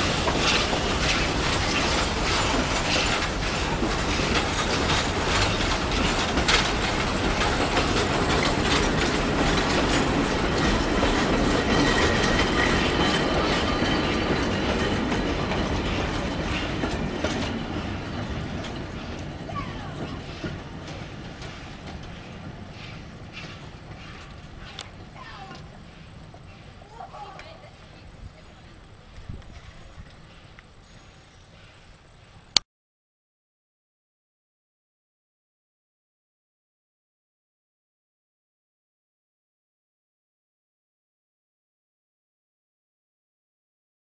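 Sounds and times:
train rolling past: 0:00.0 - 0:32.5
wheels clicking over rail joints: 0:00.0 - 0:32.6.

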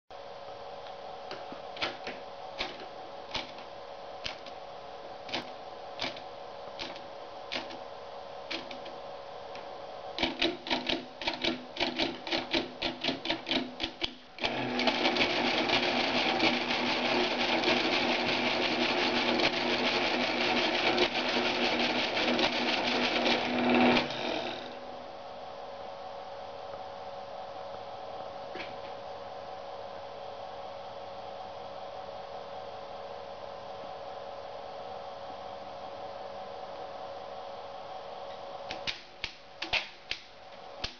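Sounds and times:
calculator mechanism clattering: 0:10.2 - 0:24.2.

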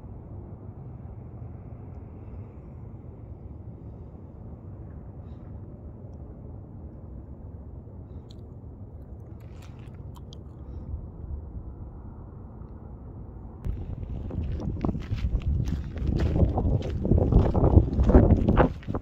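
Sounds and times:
wind rumble on microphone: 0:00.0 - 0:19.0
footsteps crunching on gravel: 0:13.7 - 0:19.0.

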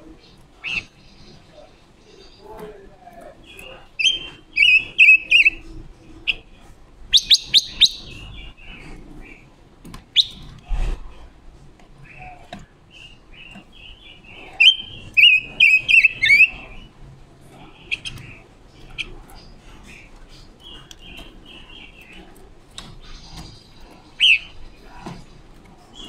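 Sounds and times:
bird chirping and whistling: 0:04.0 - 0:05.6, 0:07.1 - 0:08.3, 0:10.2 - 0:10.5, 0:14.6 - 0:16.6, 0:24.2 - 0:24.5.

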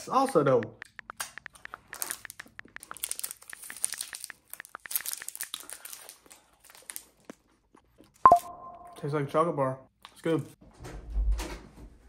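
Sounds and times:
plastic wrapper crinkling and tearing: 0:01.5 - 0:08.2.

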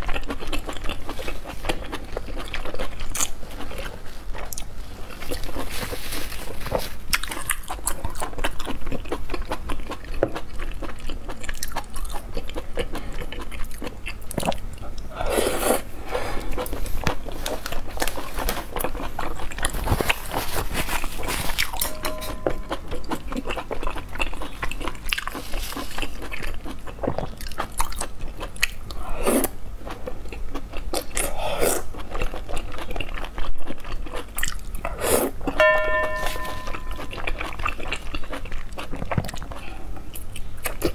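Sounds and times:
wet chewing: 0:00.0 - 0:15.8, 0:16.4 - 0:35.6
slurping: 0:15.1 - 0:17.8.

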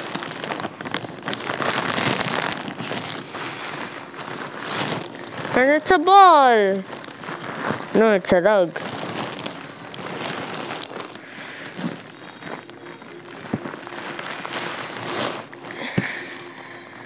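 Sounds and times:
plastic wrapping crinkling: 0:00.0 - 0:17.0.

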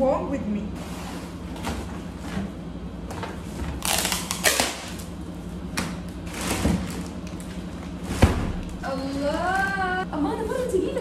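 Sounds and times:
plastic wrapping crinkling: 0:06.0 - 0:10.0.

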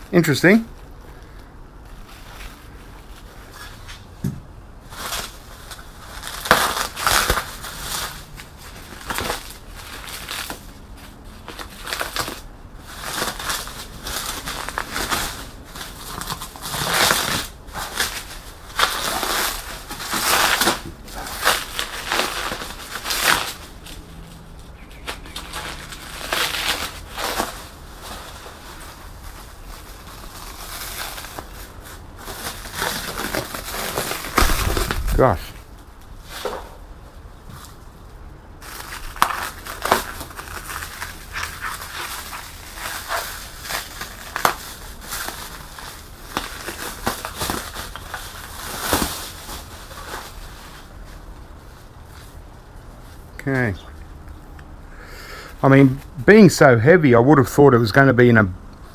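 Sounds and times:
bubble wrap and film rustling: 0:00.0 - 0:54.4.

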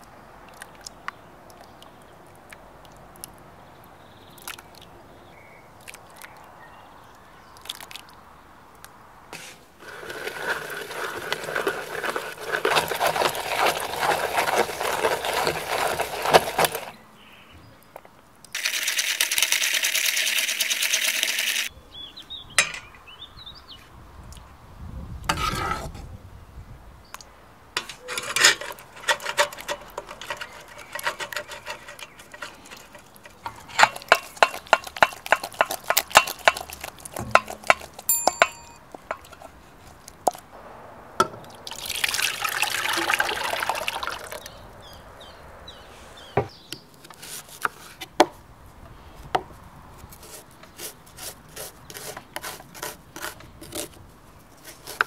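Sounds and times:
food mill blade scraping tomatoes: 0:09.4 - 0:17.0, 0:27.8 - 0:40.0, 0:47.0 - 0:48.0, 0:50.0 - 0:55.0.

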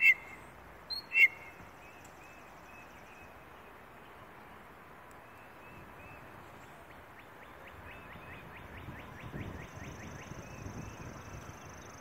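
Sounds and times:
high thin bird trill: 0:00.0 - 0:01.6
mockingbird singing: 0:00.0 - 0:03.7.

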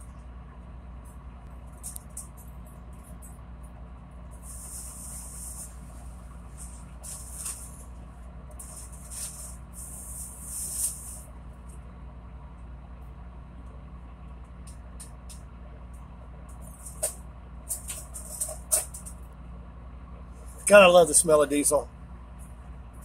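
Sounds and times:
boat diesel engine droning: 0:00.0 - 0:23.0
high hissing bursts: 0:08.6 - 0:11.2.

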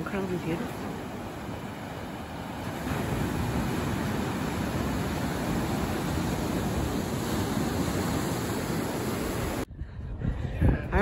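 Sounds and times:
ocean surf breaking: 0:00.0 - 0:09.7.

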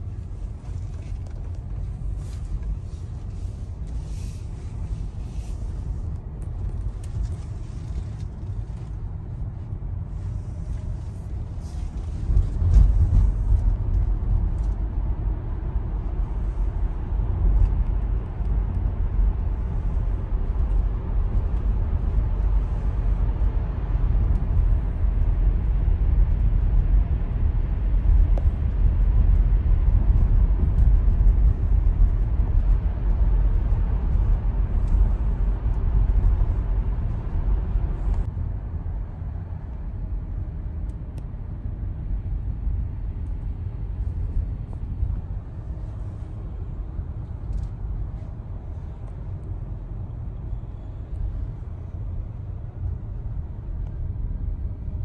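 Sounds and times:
tyre and road rumble: 0:00.0 - 0:55.0.

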